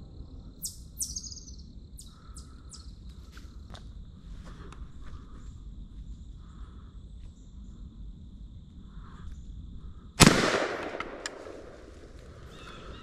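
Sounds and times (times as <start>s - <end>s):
shotgun shot with echo: 10.2s - 11.8s
sharp click: 11.2s - 11.4s.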